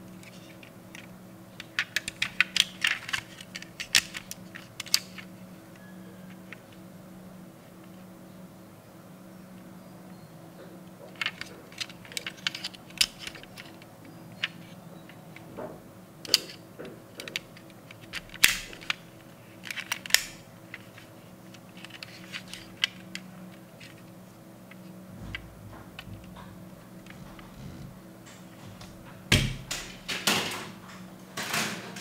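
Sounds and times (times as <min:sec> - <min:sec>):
metal toy doors clicking shut: 0:18.2 - 0:19.0.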